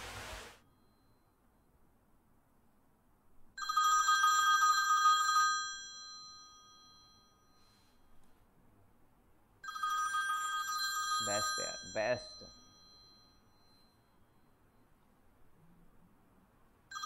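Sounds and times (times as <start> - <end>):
telephone ringing: 3.6 - 7.8, 9.6 - 14.0.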